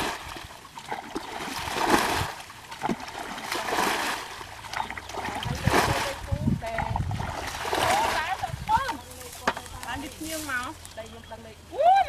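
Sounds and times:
muddy water splashing: 0:00.0 - 0:11.6.

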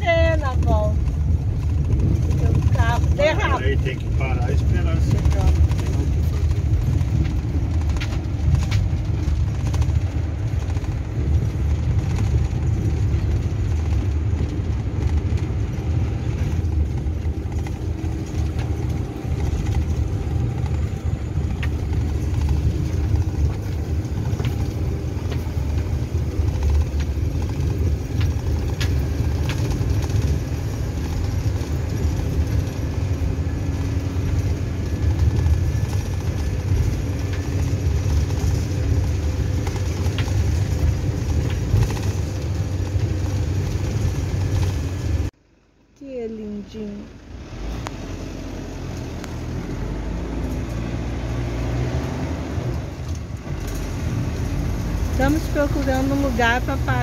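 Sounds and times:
light ticks and rattles: 0:00.0 - 0:45.3
car engine and tyres rumbling: 0:00.0 - 0:57.0.

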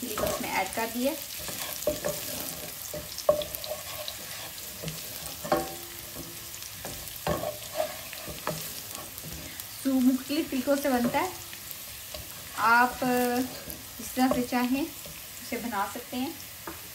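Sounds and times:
spatula scraping and knocking pot: 0:00.0 - 0:09.6
food sizzling in hot oil: 0:00.0 - 0:16.9.

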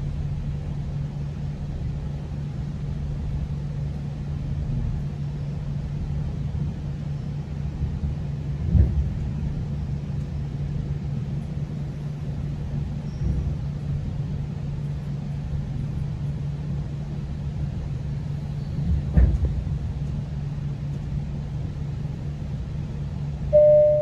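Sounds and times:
train rumbling on rails: 0:00.0 - 0:24.0
announcement chime: 0:23.6 - 0:24.0.

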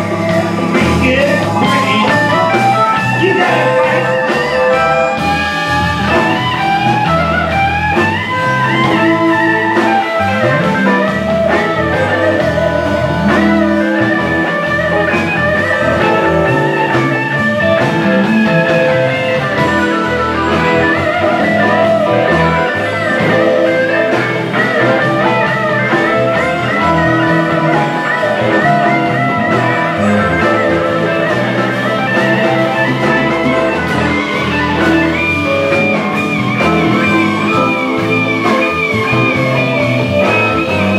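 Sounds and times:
bass and drums: 0:00.0 - 0:40.9
electric guitars: 0:00.0 - 0:40.9
harmonica: 0:00.0 - 0:40.9.

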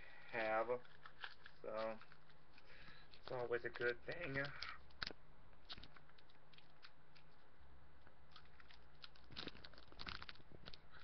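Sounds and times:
plastic wrapper crinkling: 0:00.4 - 0:11.0.

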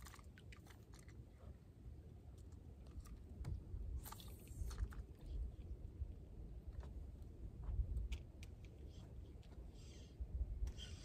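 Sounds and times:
wind buffeting microphone: 0:03.4 - 0:09.2.

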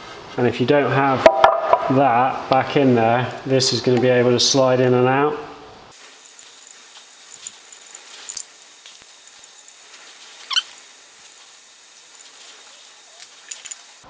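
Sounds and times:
metal shaft squeaking: 0:10.4 - 0:10.8.

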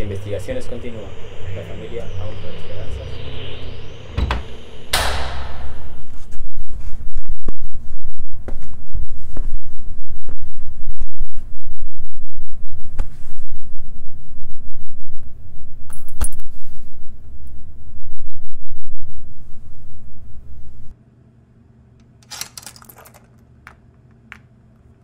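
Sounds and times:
low throbbing rumble: 0:00.0 - 0:10.9, 0:17.0 - 0:20.9.

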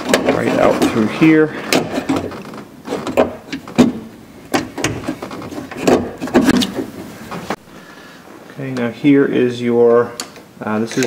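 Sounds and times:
metal rubbing: 0:00.0 - 0:03.8
metal parts knocking and rattling: 0:01.7 - 0:06.9.

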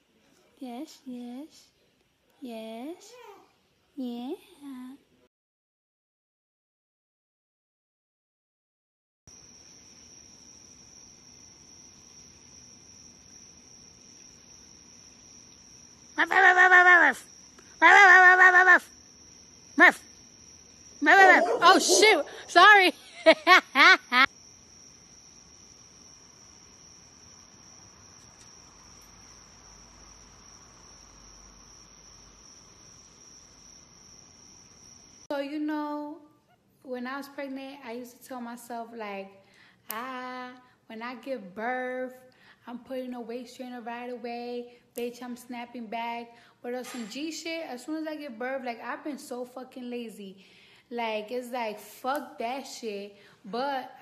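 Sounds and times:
crickets trilling: 0:09.3 - 0:35.6
night insects droning: 0:09.3 - 0:36.4, 0:37.0 - 0:54.0.

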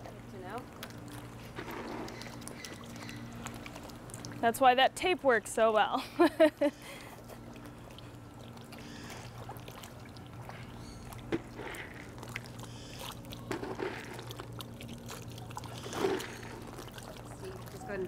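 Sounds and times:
water splashing and sloshing: 0:00.0 - 0:18.0.

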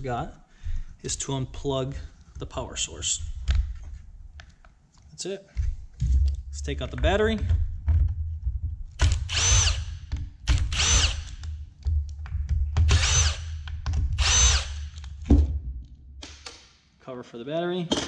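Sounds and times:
cordless drill motor whine: 0:09.3 - 0:10.0, 0:10.6 - 0:11.4, 0:12.9 - 0:13.6, 0:14.2 - 0:14.9.

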